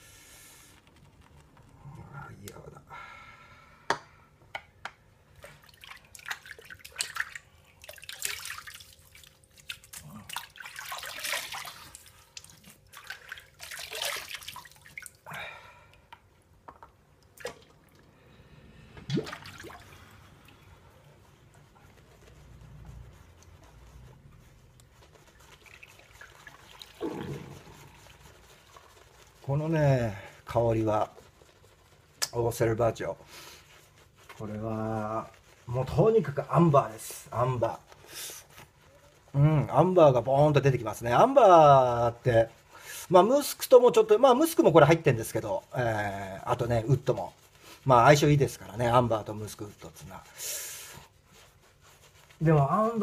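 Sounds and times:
wet rubbing of lather: 0.0s - 2.8s, 5.2s - 15.3s, 16.5s - 53.0s
water splashing and dripping: 5.4s - 15.3s, 17.2s - 18.1s, 19.0s - 20.6s, 25.3s - 28.0s.

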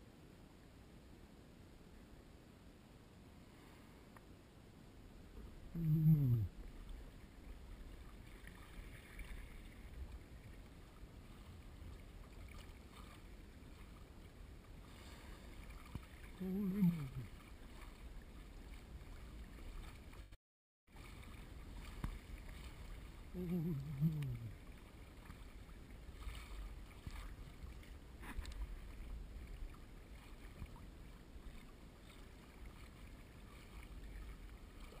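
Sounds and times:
water sloshing against hull: 5.2s - 35.0s.

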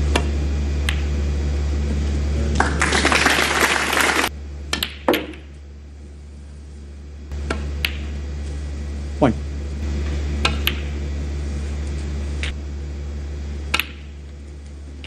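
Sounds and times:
steady low hum: 0.0s - 15.0s
audience applause: 2.4s - 4.3s.

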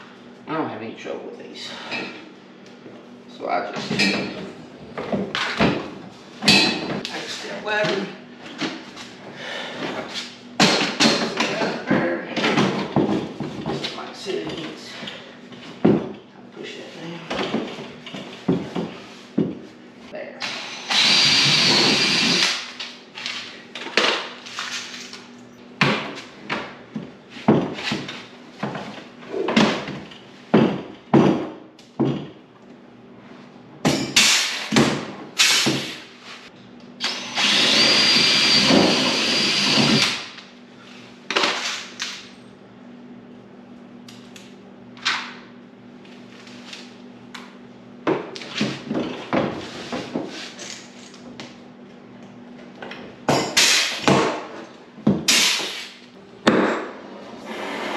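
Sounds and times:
cordless drill drilling into plastic: 20.4s - 22.5s, 37.0s - 40.2s.

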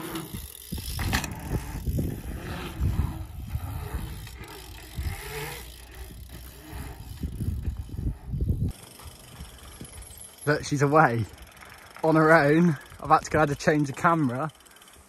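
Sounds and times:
wind rumbling on microphone: 0.0s - 10.2s
bike rolling over asphalt: 0.0s - 15.0s.

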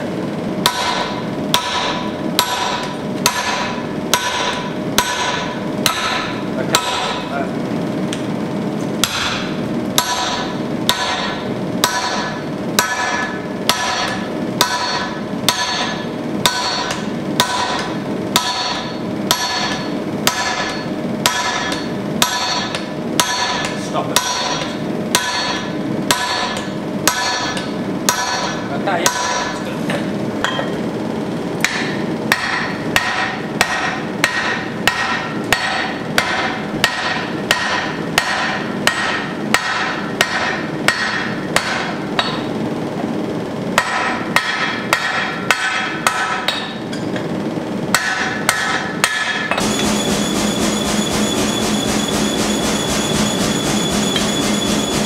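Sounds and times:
hammer ringing on anvil: 0.6s - 7.3s, 9.0s - 29.6s, 30.4s - 30.8s, 31.6s - 42.5s, 43.8s - 47.1s, 47.9s - 55.0s
steady ringing tone: 9.4s - 28.7s, 48.3s - 55.0s.

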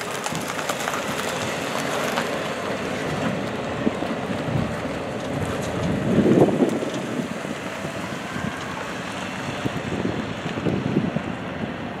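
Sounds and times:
car tyres passing close: 0.0s - 12.0s
freight train rumbling: 0.0s - 12.0s
wind on microphone: 3.2s - 12.0s.

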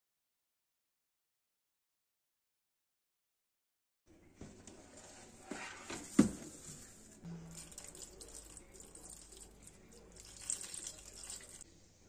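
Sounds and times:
faint liquid noise: 6.8s - 11.9s.

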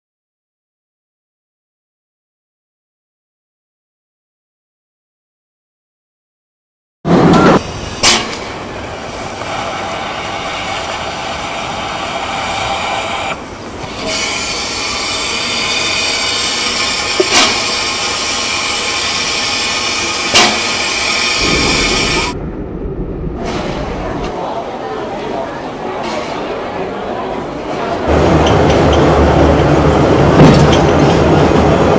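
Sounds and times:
steam locomotive hissing: 7.1s - 22.4s.

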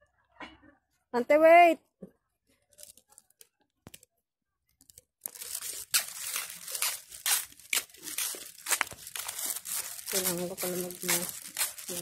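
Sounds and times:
face mask crinkling and rustling: 2.6s - 4.0s, 4.7s - 12.0s
sharp crackles: 4.8s - 12.0s.

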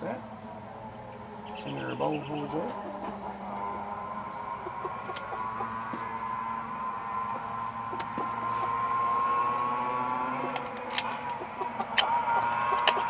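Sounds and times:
wavering humming tone: 0.0s - 13.0s
parts clicking together: 10.5s - 12.1s.

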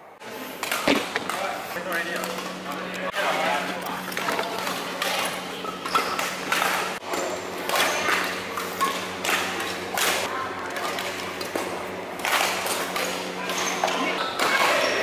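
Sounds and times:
players' voices: 0.2s - 15.0s.

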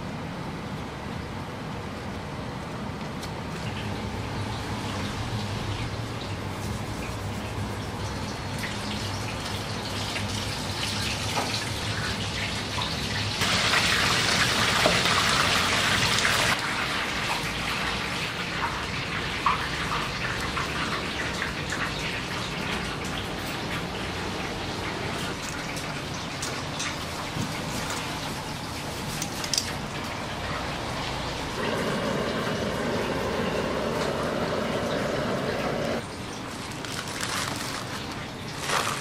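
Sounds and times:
water running from a tap: 7.8s - 16.6s, 31.0s - 36.0s.

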